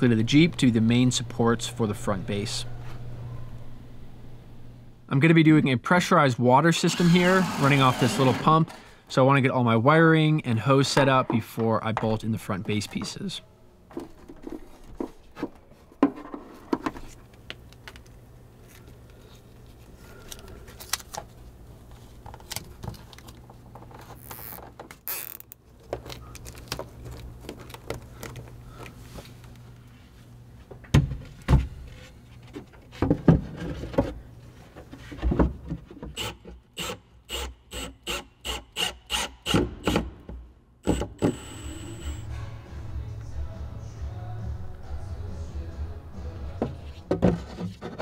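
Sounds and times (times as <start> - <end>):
faint hum: 0.0 - 24.5, 40.9 - 47.1.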